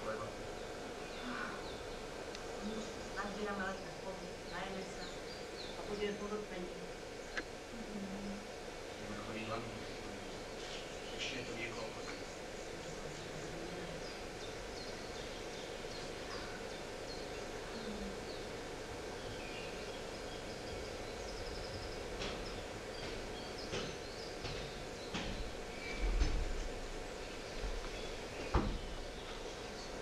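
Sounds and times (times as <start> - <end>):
birds chirping: 0.0 - 30.0
steady background hum: 0.0 - 30.0
sharp knocks: 22.2 - 26.8.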